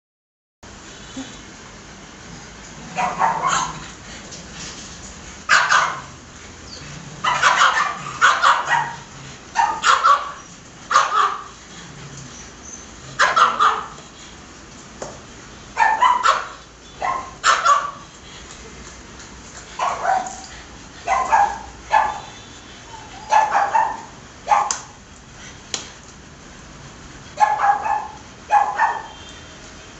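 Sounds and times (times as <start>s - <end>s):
dog barking: 2.9s - 3.8s, 5.5s - 6.2s, 7.2s - 11.5s, 13.2s - 14.0s, 15.8s - 18.0s, 19.8s - 20.4s, 21.0s - 22.4s, 23.2s - 25.0s, 27.4s - 29.2s.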